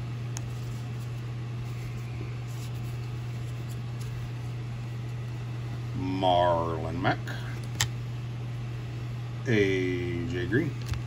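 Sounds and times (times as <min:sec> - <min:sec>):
low room hum: 0:00.0 - 0:11.0
cards rustling: 0:00.4 - 0:05.4.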